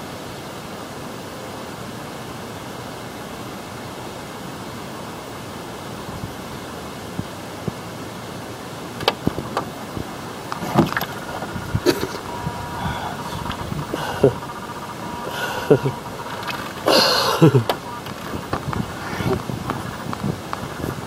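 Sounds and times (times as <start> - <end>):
plastic jug clicks and knocks: 10.5 - 11.2.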